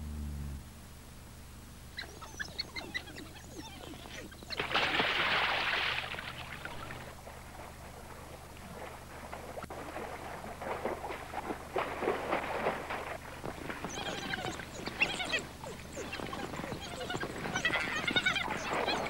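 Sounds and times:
wild dogs twittering calls: 0:01.9 - 0:05.6, 0:13.6 - 0:19.0
dog splashing through water: 0:04.5 - 0:19.0.

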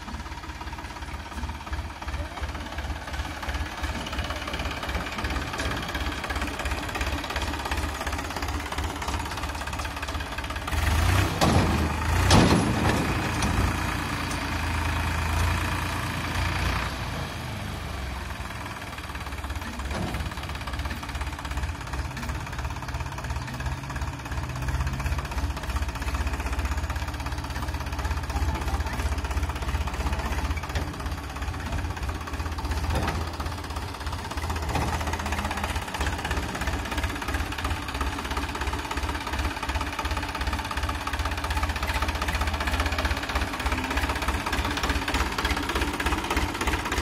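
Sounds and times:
tractor diesel engine rumbling: 0:00.0 - 0:47.0
loud clanks: 0:11.2 - 0:14.5.

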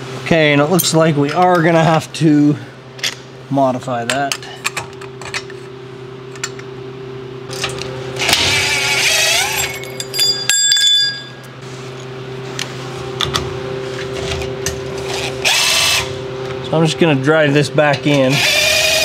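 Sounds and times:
steady low hum: 0:00.0 - 0:19.0
metallic clinks of hardware: 0:09.6 - 0:11.5
power drill running: 0:15.1 - 0:16.1, 0:18.3 - 0:19.0.

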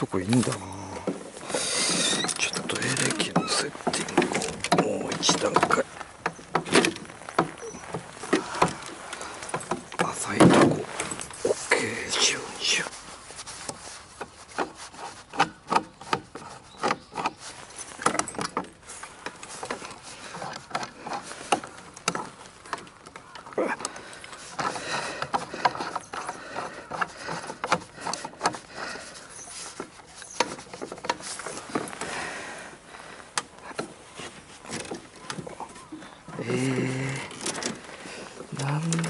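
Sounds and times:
trolling motor knocking and rattling: 0:00.0 - 0:11.5, 0:23.8 - 0:29.2.

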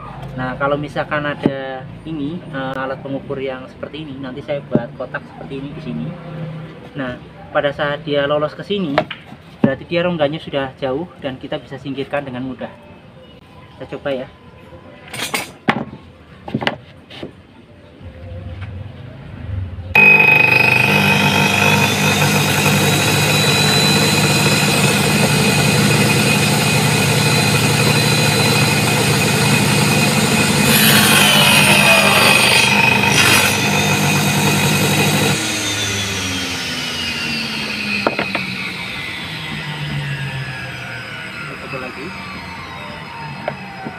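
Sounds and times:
saw motor whining: 0:19.9 - 0:43.9
blade cutting wooden strip: 0:20.0 - 0:36.3.

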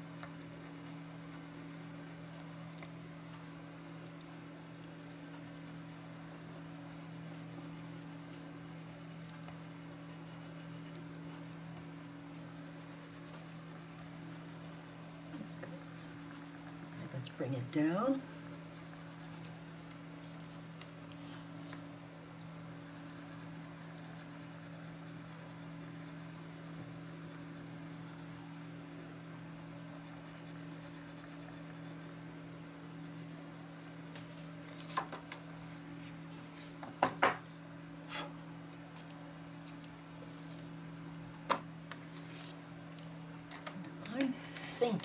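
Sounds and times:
coloured pencil scratching on paper: 0:00.0 - 0:04.2, 0:04.8 - 0:11.5, 0:12.4 - 0:20.7, 0:22.4 - 0:34.3
steady low hum: 0:00.0 - 0:45.0.

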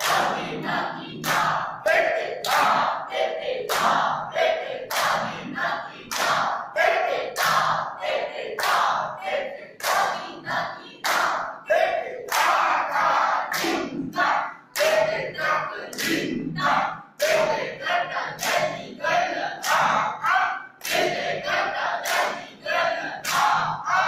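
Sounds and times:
hand claps: 0:00.0 - 0:00.4, 0:01.2 - 0:01.6, 0:02.4 - 0:02.9, 0:03.6 - 0:04.1, 0:04.9 - 0:05.4, 0:06.0 - 0:06.7, 0:07.3 - 0:07.9, 0:08.6 - 0:09.1, 0:09.8 - 0:11.6, 0:12.2 - 0:15.2, 0:15.9 - 0:17.6, 0:18.3 - 0:18.8, 0:19.6 - 0:20.1, 0:20.8 - 0:21.2, 0:22.0 - 0:23.8
group chanting in unison: 0:00.0 - 0:24.0.

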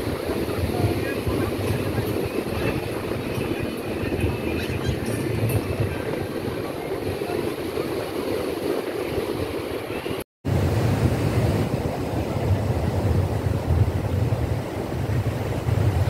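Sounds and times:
sea surf breaking on beach: 0:00.0 - 0:16.0
wind buffeting microphone: 0:00.0 - 0:16.0.

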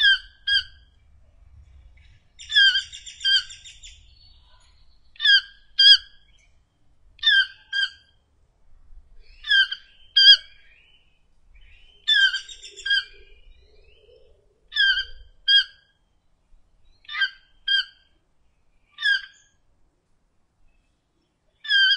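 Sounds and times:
toucan calling: 0:00.0 - 0:01.0, 0:02.0 - 0:06.5, 0:07.2 - 0:08.2, 0:09.3 - 0:10.7, 0:11.6 - 0:16.0, 0:17.0 - 0:18.2, 0:18.9 - 0:19.6, 0:21.5 - 0:21.9.

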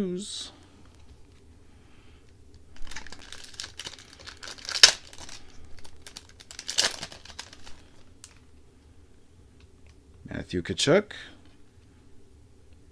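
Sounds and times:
plastic wrapper crinkling: 0:02.5 - 0:08.5
plastic wrapper ripping: 0:02.7 - 0:08.4.

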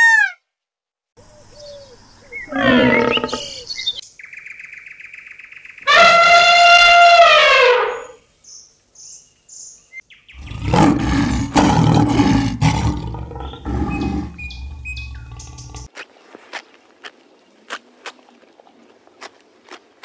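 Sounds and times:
birds chirping: 0:01.2 - 0:06.4, 0:07.9 - 0:15.9
lion roaring and growling: 0:02.5 - 0:03.6, 0:10.4 - 0:15.9.

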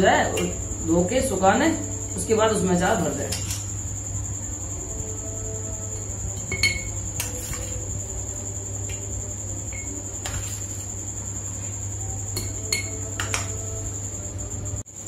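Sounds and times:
steel spoon clinking on plate: 0:06.4 - 0:07.8, 0:12.4 - 0:13.5.

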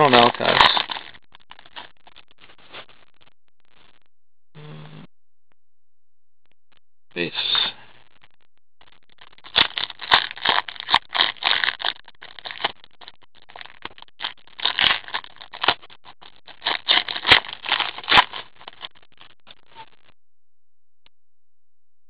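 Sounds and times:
wrapper crinkling: 0:00.0 - 0:03.0, 0:08.8 - 0:19.6.

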